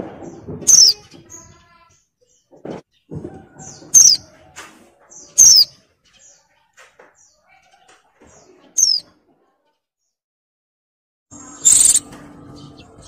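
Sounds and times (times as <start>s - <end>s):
faint bird chirps: 5.2s - 9.1s, 11.4s - 12.0s
bird downward-sweeping calls: 11.4s - 12.1s.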